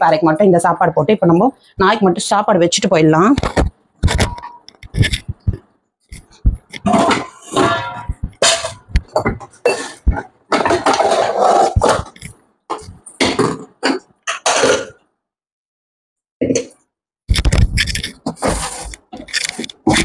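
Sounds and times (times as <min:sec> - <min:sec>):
metal vessels clanking: 0:06.2 - 0:12.2.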